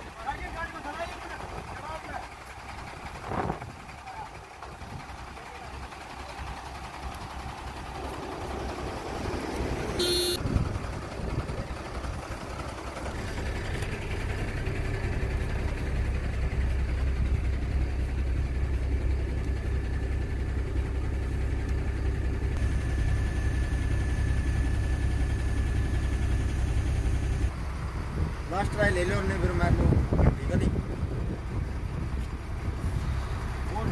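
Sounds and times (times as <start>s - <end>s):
diesel engine under load: 0.0s - 33.9s
steady whine: 5.3s - 30.0s
brief high tone: 10.0s - 10.4s.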